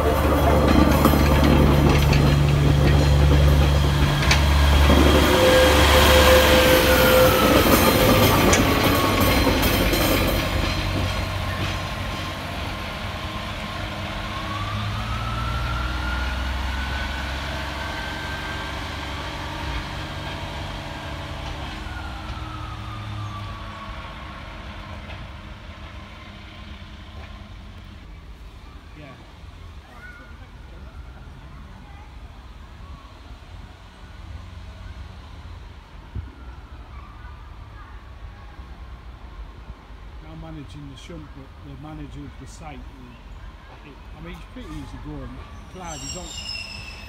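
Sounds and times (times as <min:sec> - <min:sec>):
wheels on rails: 0:00.0 - 0:14.7
diesel engine: 0:00.0 - 0:28.5, 0:38.9 - 0:47.0.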